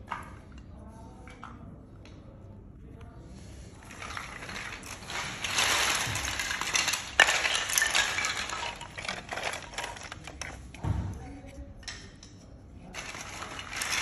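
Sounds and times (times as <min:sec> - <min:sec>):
wood chips clattering and rustling: 0:03.4 - 0:10.9, 0:12.8 - 0:14.0.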